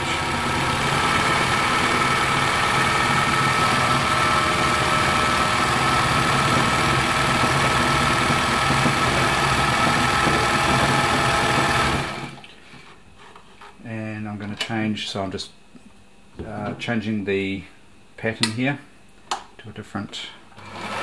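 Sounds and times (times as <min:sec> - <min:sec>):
sewing machine stitching: 0:00.0 - 0:12.4, 0:20.6 - 0:21.0.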